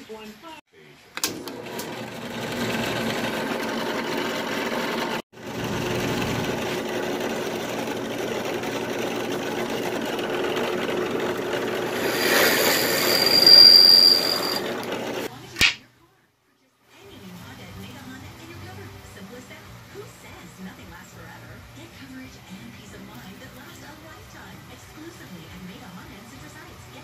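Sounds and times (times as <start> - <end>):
drill press motor running: 1.2 - 15.3
drill bit boring into wood: 1.4 - 15.3.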